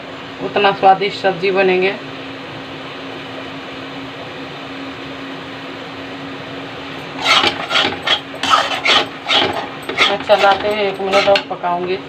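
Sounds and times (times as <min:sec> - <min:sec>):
steady mechanical hum: 0:00.0 - 0:12.0
metal spatula scraping paste in pan: 0:07.1 - 0:11.5.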